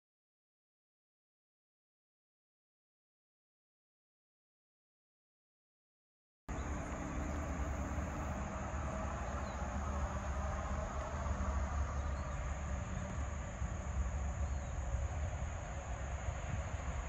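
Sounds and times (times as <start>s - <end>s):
insect drone: 6.5s - 17.0s.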